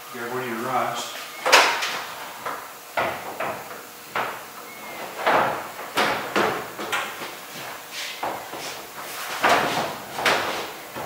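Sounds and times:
plastic panels knocking: 0:05.1 - 0:07.3.

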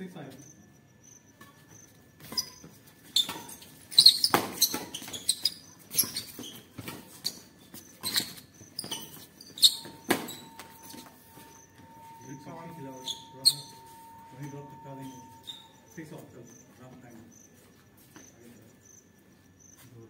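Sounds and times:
rackets striking shuttlecock: 0:03.2 - 0:05.4, 0:08.0 - 0:11.1.

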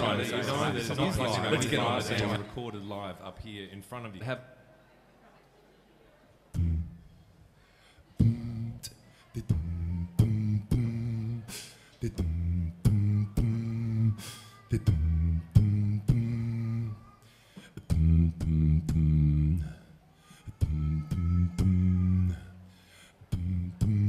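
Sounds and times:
man beatboxing bass notes: 0:06.5 - 0:07.0, 0:08.2 - 0:16.9, 0:17.8 - 0:19.8, 0:20.5 - 0:22.4, 0:23.3 - 0:24.0.

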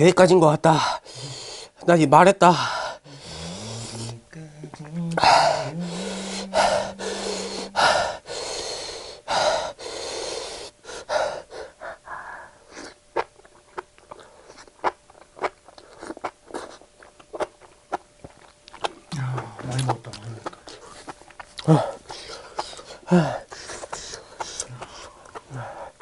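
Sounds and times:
heavy hissing breaths: 0:00.7 - 0:01.8, 0:02.5 - 0:04.2, 0:05.2 - 0:12.8, 0:21.7 - 0:26.0
wet chewing clicks: 0:13.1 - 0:25.6.

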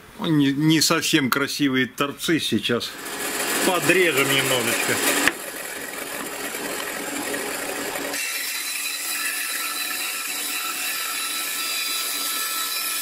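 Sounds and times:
band saw motor running: 0:02.9 - 0:13.0
saw blade cutting wood: 0:02.9 - 0:13.0.

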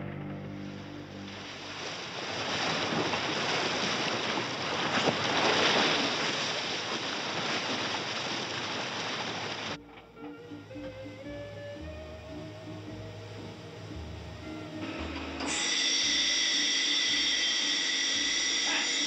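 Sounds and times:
orchestral music: 0:00.0 - 0:01.8, 0:09.8 - 0:19.0
ocean surf rushing: 0:00.6 - 0:09.8, 0:14.8 - 0:19.0.

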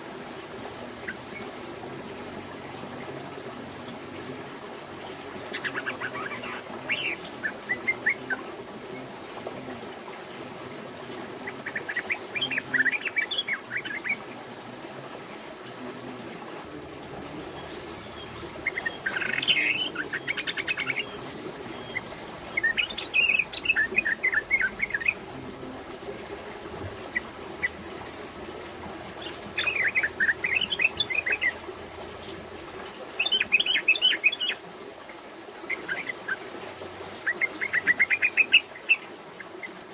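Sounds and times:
bulbul chattering song: 0:04.8 - 0:09.1, 0:11.4 - 0:14.4, 0:16.7 - 0:25.4, 0:29.1 - 0:32.4, 0:33.1 - 0:34.6, 0:37.2 - 0:39.8.

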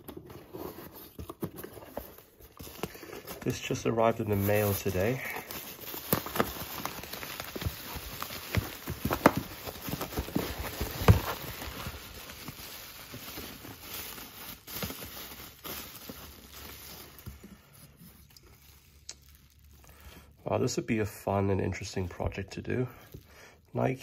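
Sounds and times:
bubble wrap crinkling and crackling: 0:00.0 - 0:20.8, 0:21.7 - 0:24.0.

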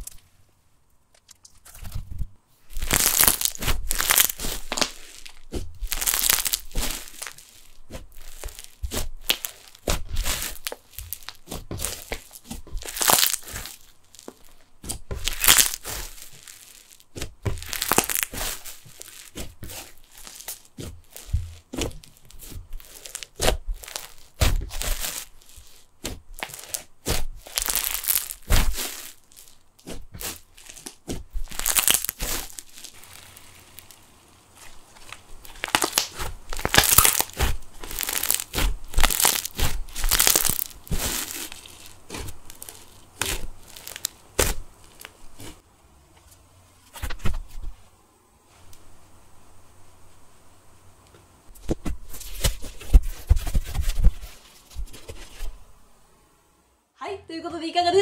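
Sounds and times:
crunchy bursts: 0:02.8 - 0:14.6, 0:17.6 - 0:45.6
slime fizzing and crackling: 0:02.8 - 0:45.6.

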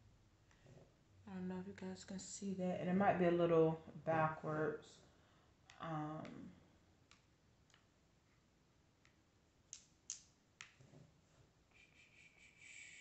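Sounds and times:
faint high steady tone: 0:11.7 - 0:13.0.

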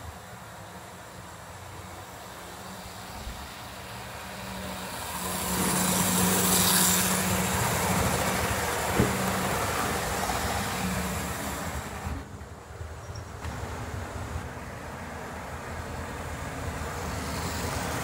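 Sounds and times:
model train motor hum and rumble: 0:03.8 - 0:12.6.

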